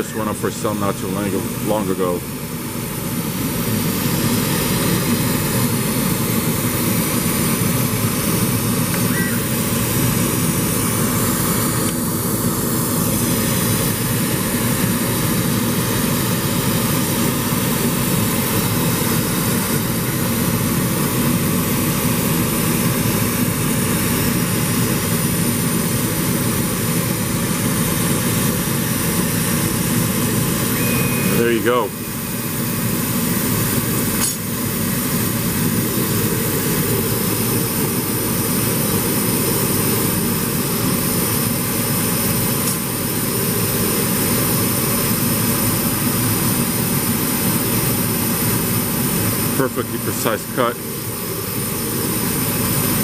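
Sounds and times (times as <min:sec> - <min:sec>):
laser cutter rushing noise: 0:00.0 - 0:53.0.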